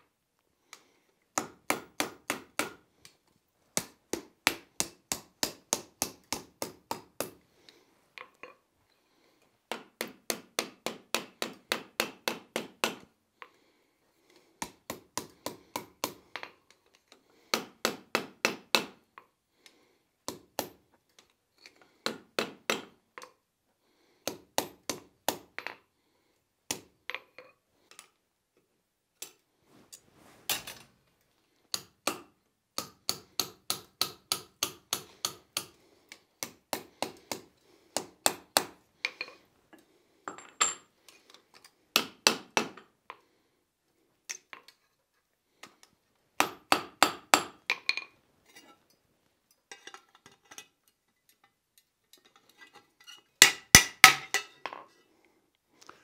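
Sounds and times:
hammer striking iron on anvil: 53.4s - 54.5s.

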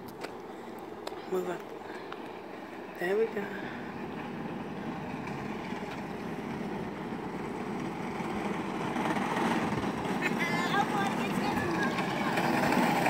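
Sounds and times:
go-kart motor running: 3.9s - 13.0s.

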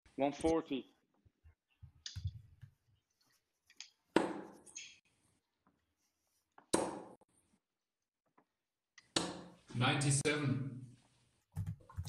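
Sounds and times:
darts thudding into dartboard: 4.1s - 4.6s, 6.7s - 7.2s, 9.1s - 9.6s.

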